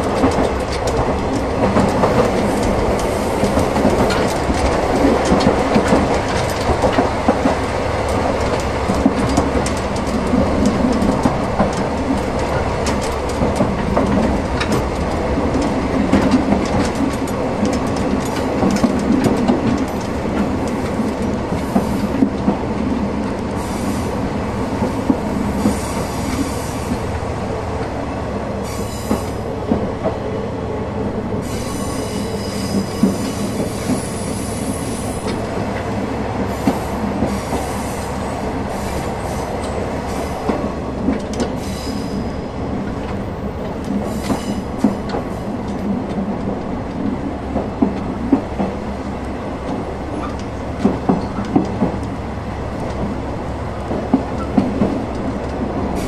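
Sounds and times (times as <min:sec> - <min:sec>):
train wheels rumbling on rail: 0:00.0 - 0:56.0
high wheel squeal: 0:31.5 - 0:33.4.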